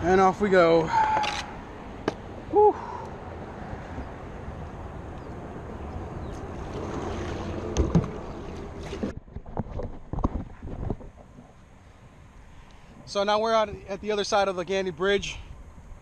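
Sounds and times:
wind on microphone: 0:05.2 - 0:11.6
paddle strokes splashing in water: 0:05.9 - 0:11.5.

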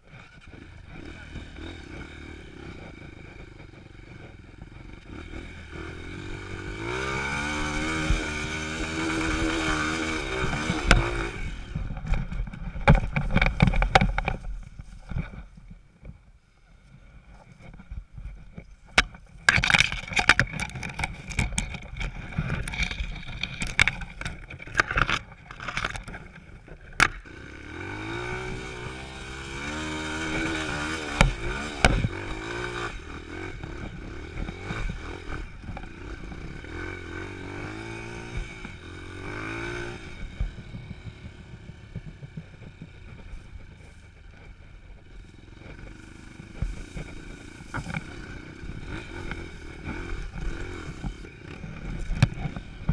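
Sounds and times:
knocks and scrapes of dirt bike: 0:00.0 - 0:52.9
dirt bike engine revving: 0:00.1 - 0:14.0, 0:27.0 - 0:41.9, 0:42.5 - 0:52.9.

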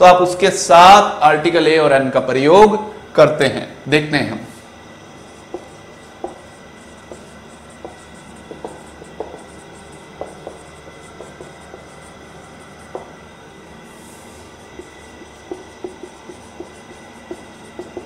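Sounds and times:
room hiss: 0:00.0 - 0:18.0
marker tapping on whiteboard: 0:05.5 - 0:12.1, 0:12.8 - 0:13.2, 0:14.7 - 0:18.0.

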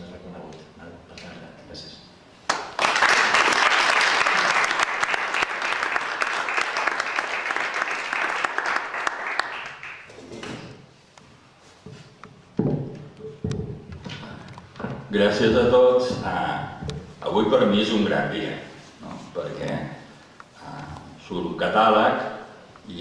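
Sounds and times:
audience applause: 0:02.5 - 0:10.1.

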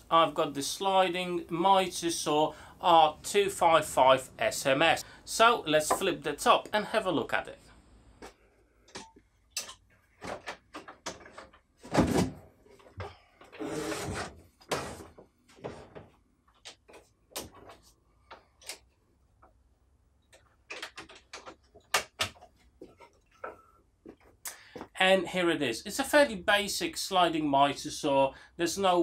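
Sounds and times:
wooden panels knocking and clicking: 0:08.8 - 0:13.1, 0:20.3 - 0:23.6
rubbing scrape: 0:13.6 - 0:15.1.

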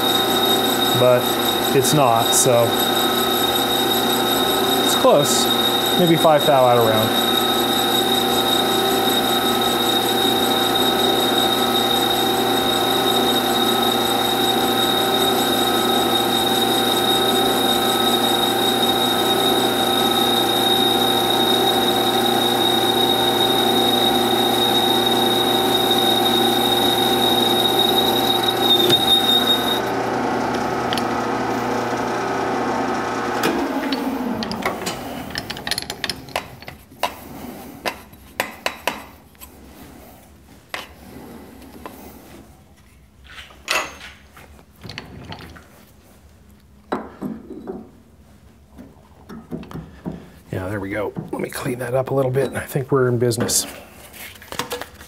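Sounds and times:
high machine whine: 0:00.0 - 0:35.4
lathe spinning down: 0:00.0 - 0:35.9
metal lathe running: 0:00.0 - 0:36.5.

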